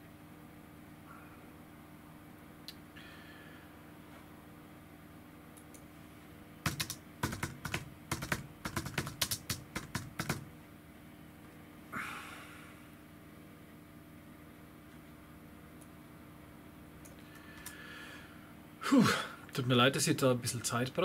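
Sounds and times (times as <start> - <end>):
typing on computer keyboard: 6.6 - 10.5.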